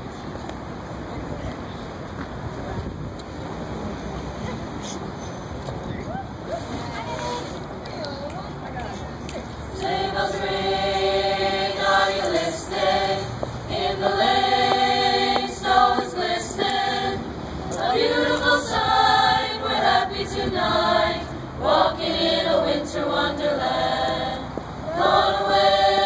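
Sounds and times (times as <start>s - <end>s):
choir singing a cappella: 9.7s - 26.0s.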